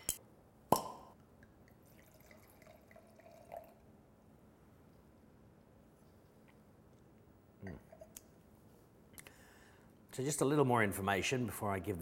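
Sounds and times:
wine pouring into glass: 0:01.8 - 0:04.0.

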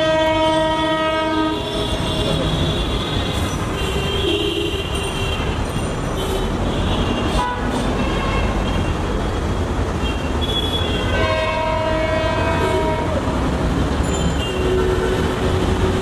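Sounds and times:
train horn blast: 0:00.0 - 0:02.4, 0:10.9 - 0:13.3
train rumbling on track: 0:00.0 - 0:16.0.

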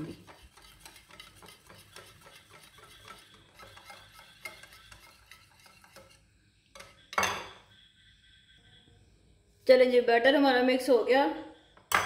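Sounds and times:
whisk clicking against bowl: 0:00.0 - 0:06.2.

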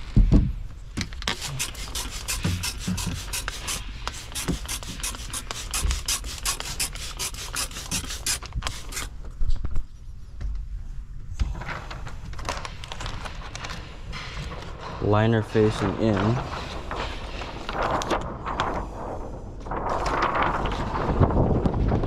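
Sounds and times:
spray bottle hissing sprays: 0:01.2 - 0:09.1.

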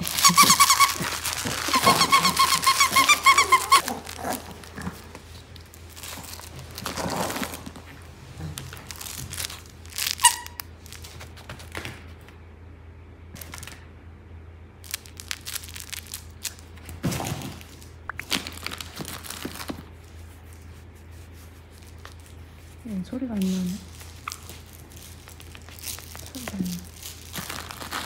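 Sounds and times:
toy squeak: 0:00.0 - 0:03.9, 0:10.0 - 0:10.6
plush toys rustling: 0:00.0 - 0:12.2, 0:14.8 - 0:28.0.

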